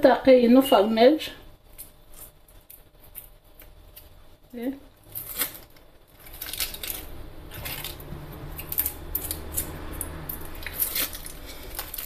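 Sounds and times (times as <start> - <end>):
steady low hum: 0.0 - 12.0
wrapper crinkling: 5.0 - 9.7, 10.3 - 12.0.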